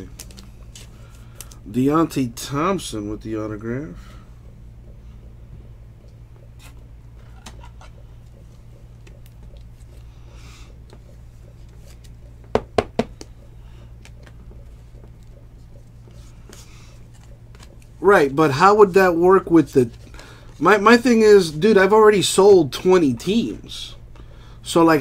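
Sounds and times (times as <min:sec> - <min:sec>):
trading cards rustling: 0:00.0 - 0:01.7, 0:16.1 - 0:18.0
steady low hum: 0:00.0 - 0:25.0.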